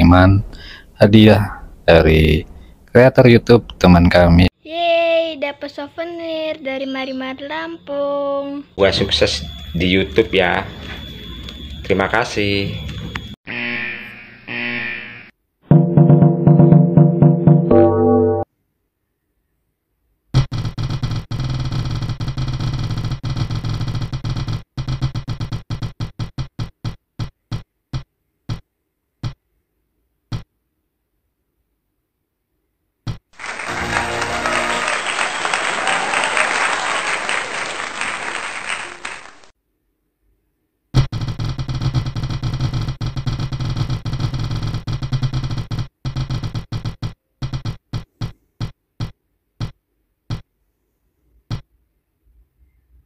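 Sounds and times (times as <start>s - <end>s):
spinning wheel ticking: 41.0s - 48.1s.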